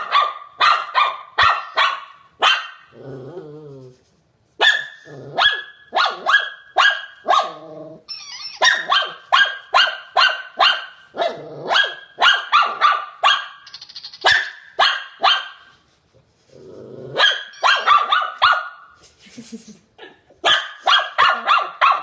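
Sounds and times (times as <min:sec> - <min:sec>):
dog barking: 0:00.0 - 0:02.9, 0:04.6 - 0:07.6, 0:08.6 - 0:13.6, 0:14.2 - 0:15.7, 0:17.2 - 0:19.0, 0:20.0 - 0:22.0
dog growling: 0:02.9 - 0:04.0, 0:05.1 - 0:05.5, 0:07.5 - 0:08.1, 0:11.2 - 0:11.8, 0:16.5 - 0:17.3.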